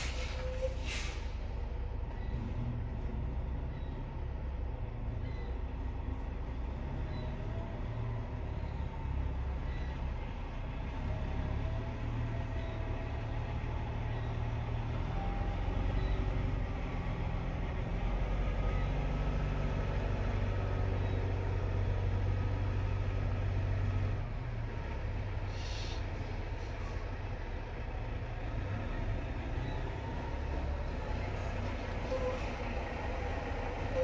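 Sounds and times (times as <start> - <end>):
air hiss: 0.0 - 1.4, 25.5 - 26.0
diesel engine idling: 0.0 - 34.0.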